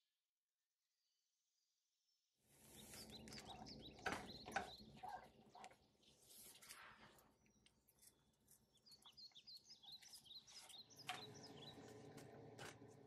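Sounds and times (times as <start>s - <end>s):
faint high bird chirps: 2.6s - 12.1s.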